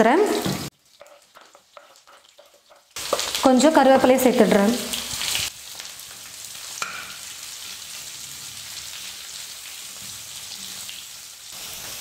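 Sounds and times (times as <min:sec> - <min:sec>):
vegetables sizzling in hot oil: 0:00.2 - 0:12.0
metal spatula stirring: 0:00.8 - 0:04.1.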